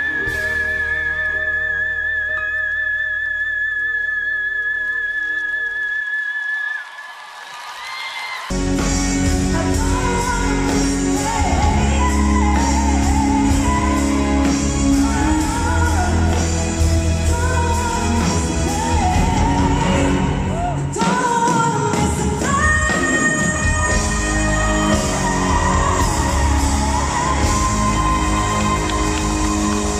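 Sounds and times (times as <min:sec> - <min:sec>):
full band playing: 0:00.0 - 0:05.7, 0:08.4 - 0:29.9
soprano singing: 0:09.2 - 0:29.9.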